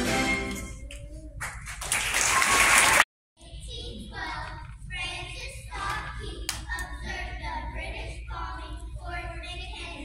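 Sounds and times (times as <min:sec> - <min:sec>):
children singing: 0:03.9 - 0:10.0.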